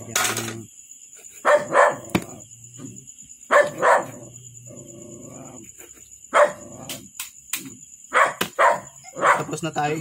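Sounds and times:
dog barking: 1.4 - 2.2, 3.5 - 4.4, 6.3 - 6.7, 8.1 - 9.6.

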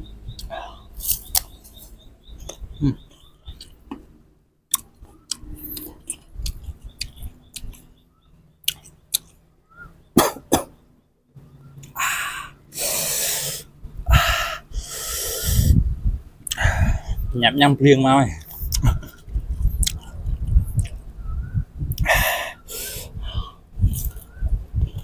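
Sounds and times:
chewing crunchy mango: 4.7 - 8.0, 8.6 - 9.4, 19.8 - 21.0
hissing breaths through lips: 12.7 - 15.8, 21.9 - 24.2.

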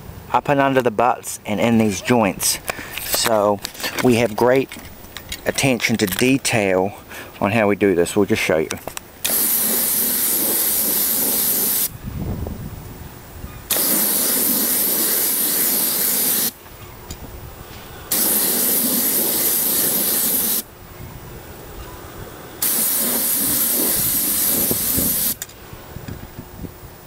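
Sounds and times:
paint spray wand hissing: 9.3 - 11.9, 13.7 - 16.6, 18.1 - 20.7, 22.6 - 25.4.

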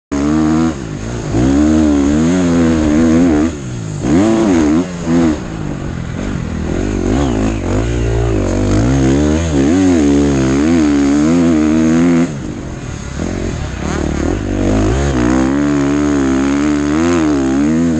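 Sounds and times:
motocross bike engine revving: 0.1 - 17.9.

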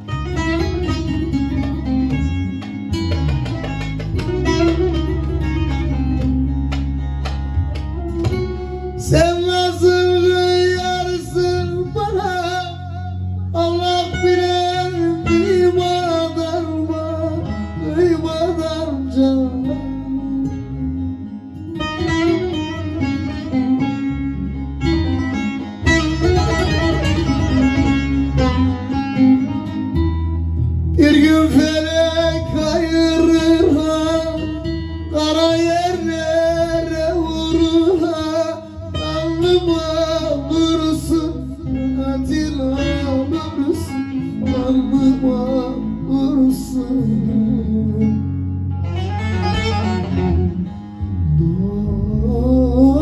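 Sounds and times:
bass backing: 0.0 - 53.0
plucked lute melody: 0.0 - 53.0
man singing: 8.2 - 21.5, 31.0 - 48.5, 50.0 - 53.0.

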